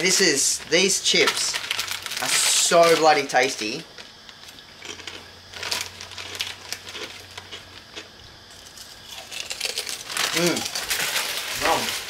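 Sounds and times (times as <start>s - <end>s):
plastic chip bag crinkling: 0.0s - 12.0s
crunchy chips being chewed: 1.1s - 3.2s, 3.9s - 12.0s.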